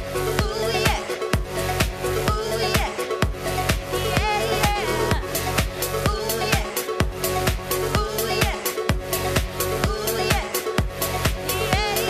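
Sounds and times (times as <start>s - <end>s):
electronic dance music: 0.0s - 12.0s
steady kick drum: 0.0s - 12.0s
woman singing into a microphone: 0.3s - 1.4s, 2.2s - 3.3s, 3.9s - 5.3s, 6.0s - 7.1s, 7.8s - 8.9s, 9.8s - 10.8s, 11.4s - 12.0s.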